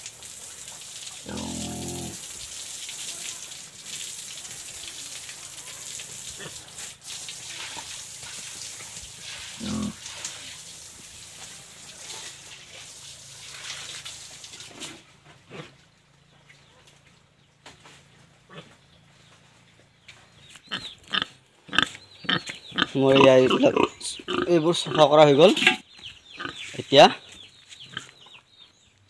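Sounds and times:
hose water splashing on floor: 0:00.0 - 0:15.0
pig grunting: 0:01.2 - 0:02.3, 0:09.3 - 0:10.2, 0:18.4 - 0:18.8, 0:20.7 - 0:25.8.

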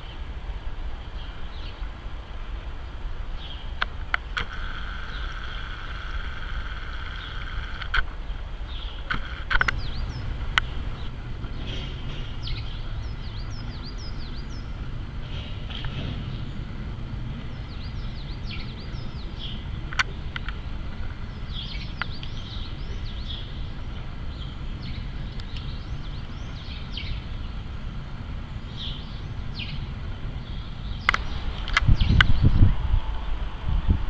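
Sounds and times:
jet airliner rumble overhead: 0:00.0 - 0:34.0
small birds chirping: 0:02.8 - 0:03.9, 0:04.7 - 0:32.8
sharp clicks: 0:09.0 - 0:11.2, 0:31.0 - 0:32.3.

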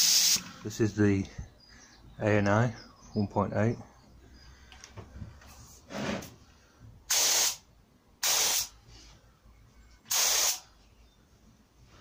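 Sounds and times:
spray gun hissing: 0:00.0 - 0:00.5, 0:07.1 - 0:07.6, 0:08.2 - 0:08.7, 0:10.1 - 0:10.6.

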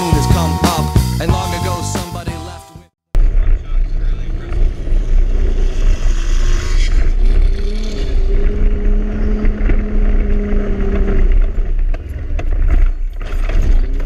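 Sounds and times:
pickup engine pulling hard: 0:03.3 - 0:14.0.

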